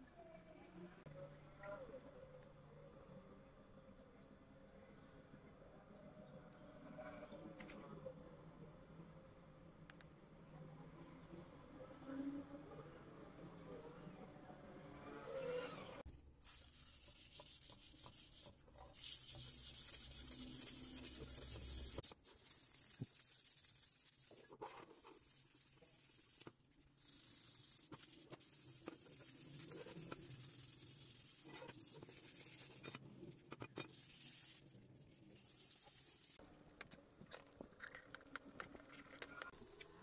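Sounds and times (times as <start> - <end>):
sandpaper rubbing on metal: 16.4 - 32.9, 33.9 - 36.4.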